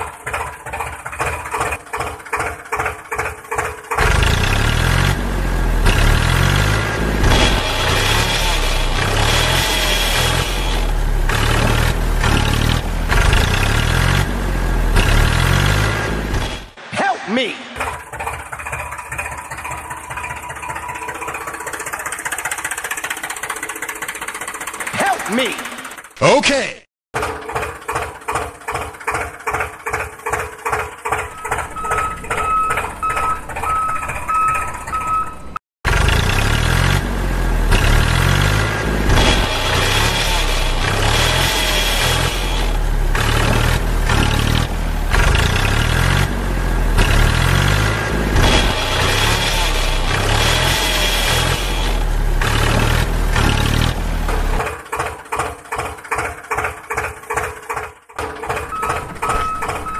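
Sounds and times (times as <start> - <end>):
tractor engine running: 0.0 - 16.9, 17.8 - 26.4, 27.2 - 59.9
reversing beeps: 31.2 - 35.6, 58.6 - 59.9.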